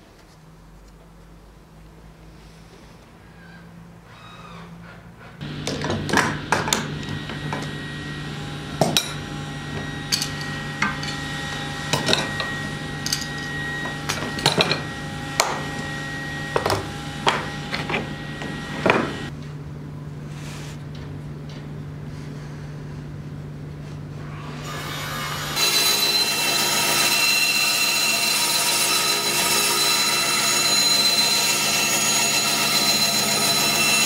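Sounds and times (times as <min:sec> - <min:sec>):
metal clamps clanking: 0:08.8 - 0:11.3, 0:11.9 - 0:15.6.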